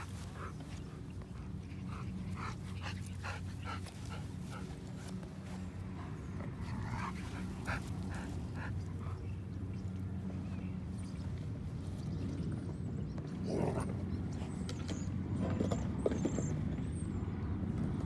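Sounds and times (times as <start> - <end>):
dog panting: 0.0 - 9.9
steady low hum: 0.0 - 15.3.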